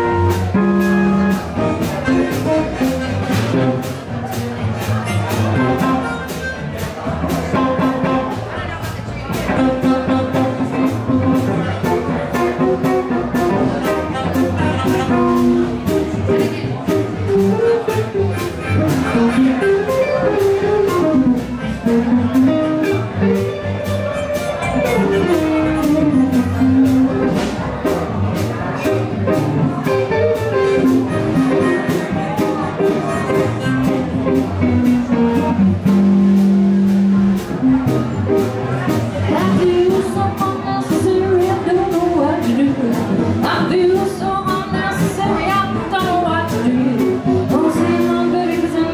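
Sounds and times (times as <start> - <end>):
electric guitar: 0.0 - 3.9, 9.3 - 41.8
held melody line: 0.0 - 4.2, 9.3 - 27.7, 28.6 - 48.9
acoustic guitar: 0.0 - 48.9
drum kit beat: 0.0 - 48.9.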